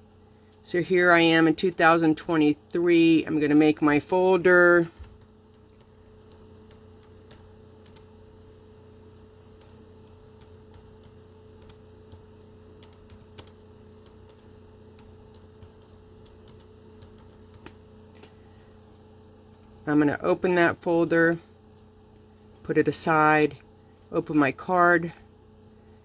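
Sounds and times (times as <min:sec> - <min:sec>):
low electrical hum: 0:00.0 - 0:26.0
keyboard typing: 0:01.6 - 0:08.1, 0:09.1 - 0:18.3.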